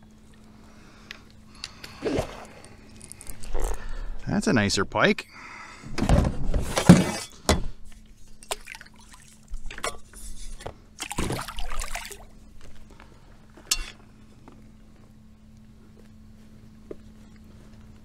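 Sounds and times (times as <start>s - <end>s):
water splashing and dribbling: 8.4s - 12.4s.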